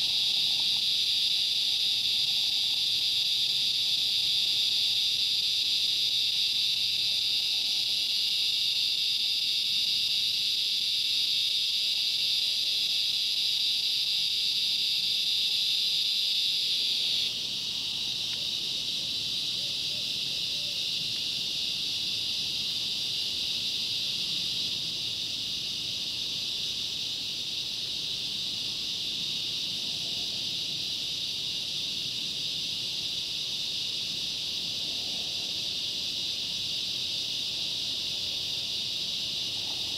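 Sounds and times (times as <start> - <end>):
insects chirping chorus: 0.0 - 39.9.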